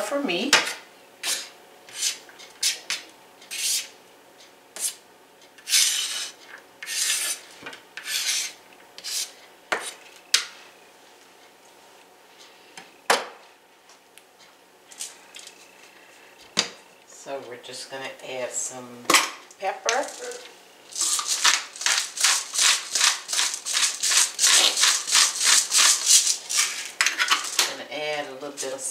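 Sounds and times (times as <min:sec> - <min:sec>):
knife scraping on cutting mat: 0:01.2 - 0:04.0, 0:04.8 - 0:05.0, 0:05.6 - 0:10.0, 0:22.2 - 0:27.4.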